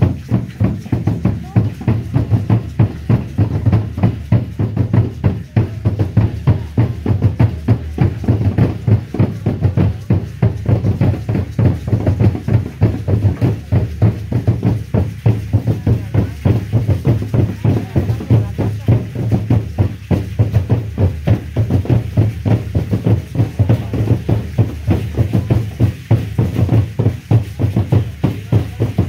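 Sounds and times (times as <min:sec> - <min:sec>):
fast steady drumming: 0:00.0 - 0:29.0.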